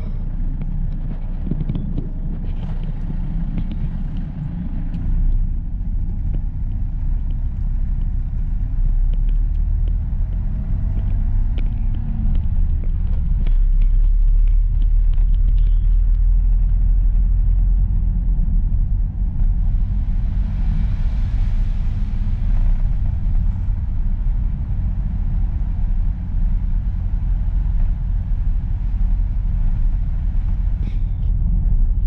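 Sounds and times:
car driving rumble: 0.0 - 32.0.

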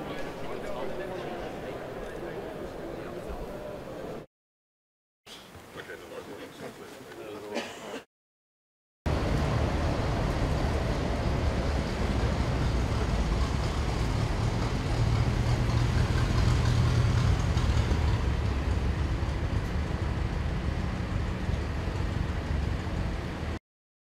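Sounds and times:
car engine rumble: 9.1 - 23.6
road noise: 9.1 - 23.6.

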